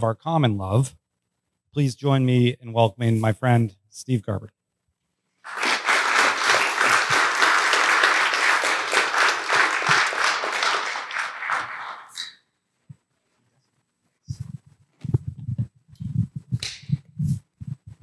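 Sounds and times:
audience applauding: 5.4s - 12.3s.

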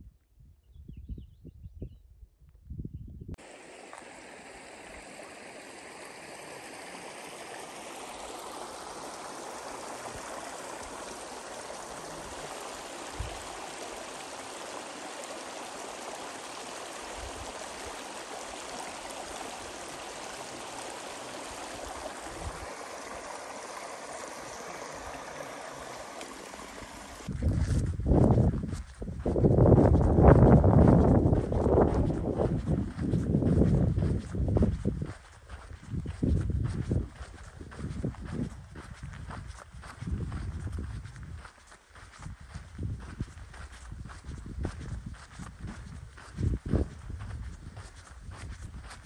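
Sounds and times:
creek water rushing: 3.4s - 27.3s.

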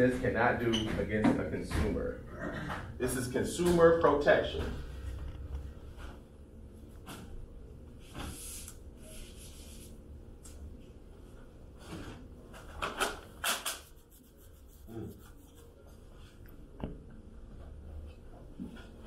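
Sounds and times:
marker scratching on whiteboard: 13.4s - 15.7s.

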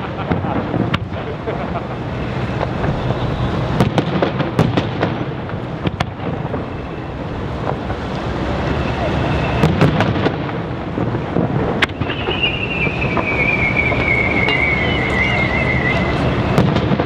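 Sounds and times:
firework shells bursting: 9.3s - 17.0s.

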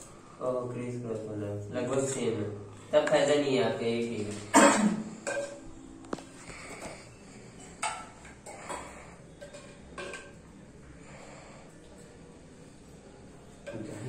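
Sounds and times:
ladle clinking against pots: 4.5s - 5.8s, 7.5s - 10.5s.

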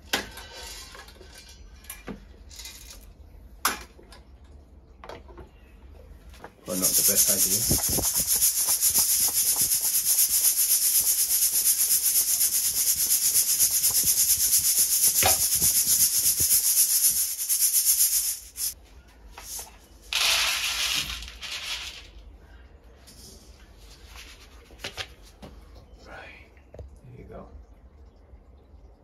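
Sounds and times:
coffee beans rattling in metal colander: 2.5s - 3.1s, 6.7s - 18.8s, 19.4s - 22.2s.

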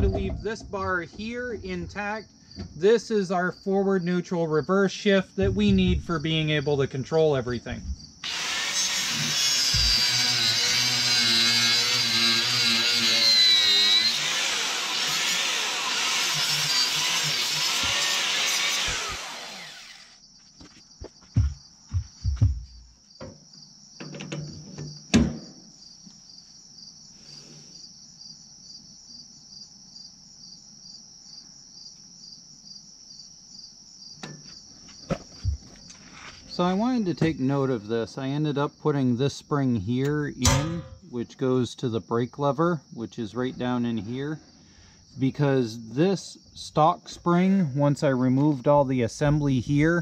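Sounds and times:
metal clanks and knocks: 0.0s - 2.8s, 40.4s - 41.1s
crickets chirping: 0.0s - 50.0s
angle grinder cutting steel: 8.2s - 20.2s.

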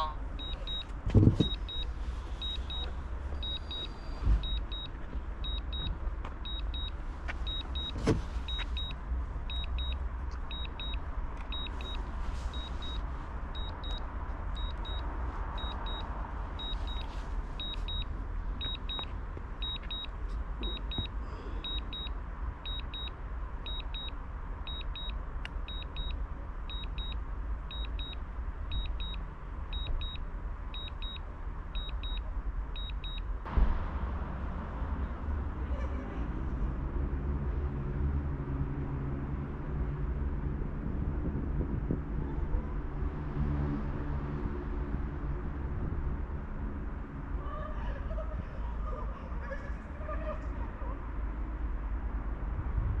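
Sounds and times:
wind rumble on microphone: 39.8s - 43.2s, 52.6s - 53.0s.

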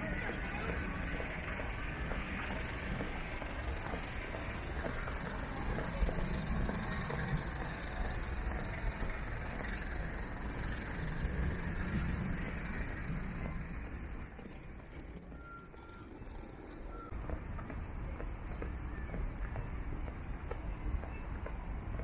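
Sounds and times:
road traffic rumble: 0.0s - 22.0s
high electronic beeps: 12.9s - 17.1s.

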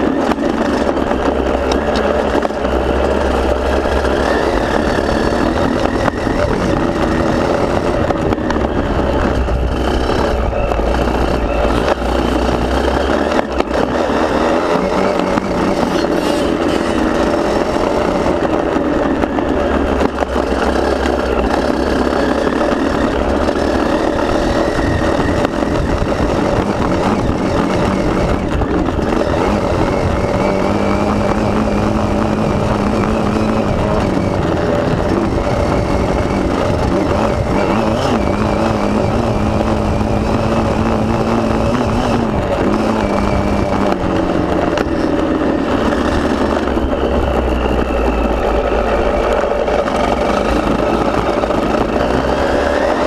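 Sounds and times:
motorbike engine running hard: 0.0s - 53.0s
wind rushing on microphone: 0.0s - 53.0s.

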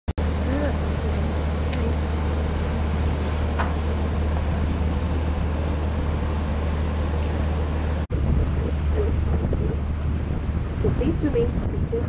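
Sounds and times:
boat engine idling: 0.2s - 12.0s.

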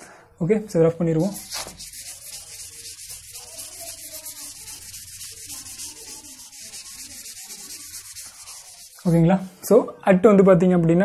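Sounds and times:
eraser rubbing on blackboard: 1.0s - 9.4s.

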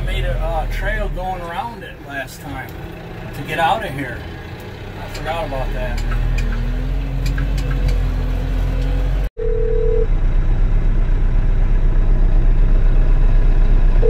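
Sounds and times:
tractor diesel engine running: 0.0s - 14.0s
phone ringing tone: 9.4s - 10.1s.

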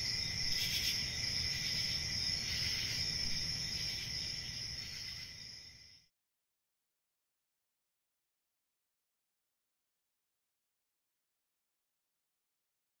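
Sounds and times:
crickets chirping: 0.0s - 6.1s.

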